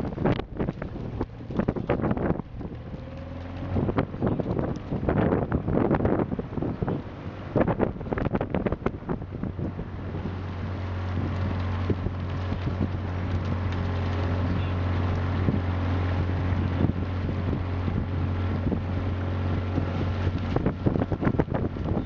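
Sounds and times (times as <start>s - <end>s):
outboard motor running: 0.0s - 22.0s
wind buffeting microphone: 0.0s - 22.0s.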